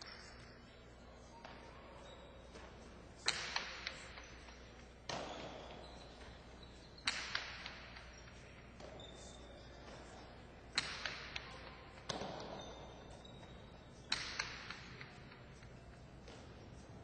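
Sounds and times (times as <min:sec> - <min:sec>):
soft clicks of catches and bounces: 0:00.0 - 0:17.0
ball striking walls with echo: 0:01.2 - 0:17.0.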